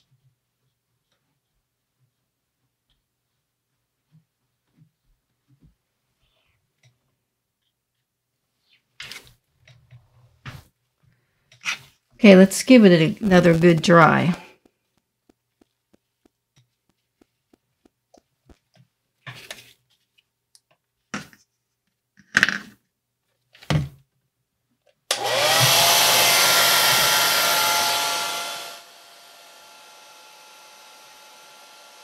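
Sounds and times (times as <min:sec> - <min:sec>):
hair dryer running: 0:25.1 - 0:32.0.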